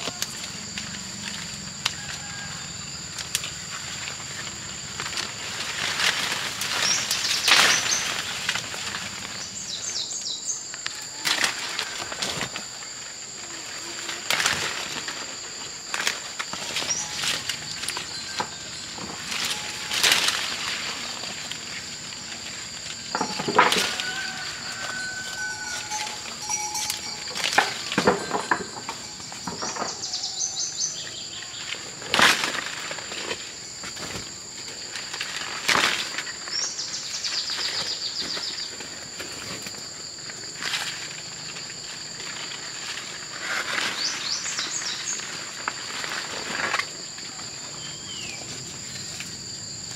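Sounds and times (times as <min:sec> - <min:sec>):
insects droning: 0:00.0 - 0:49.9
rustling and snapping: 0:03.2 - 0:09.4, 0:14.1 - 0:24.2, 0:31.7 - 0:34.3, 0:34.9 - 0:36.6
sharp rustles or knocks: 0:23.1 - 0:30.3
bird chirping: 0:25.6 - 0:31.7, 0:47.8 - 0:49.0.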